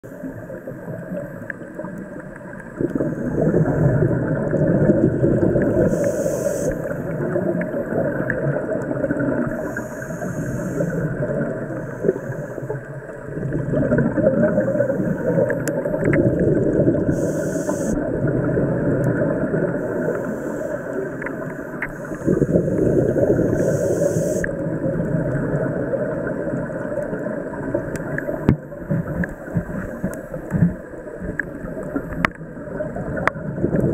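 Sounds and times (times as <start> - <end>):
bubbling exhalation underwater: 2.8 - 6.0, 13.3 - 19.8
hissing regulator inhalation: 5.7 - 7.2, 9.5 - 12.8, 17.0 - 18.0, 19.8 - 24.5.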